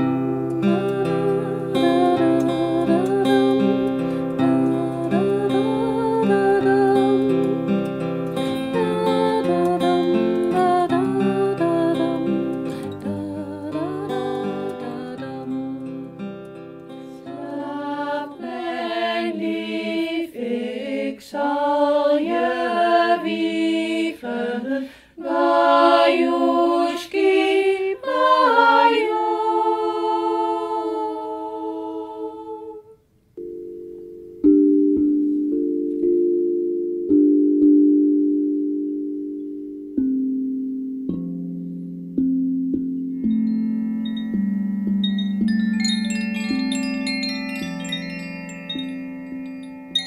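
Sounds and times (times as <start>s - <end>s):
person singing slow melody: 0.0s - 7.8s, 8.4s - 16.1s, 17.0s - 33.0s
steel tongue drum notes: 33.4s - 50.0s.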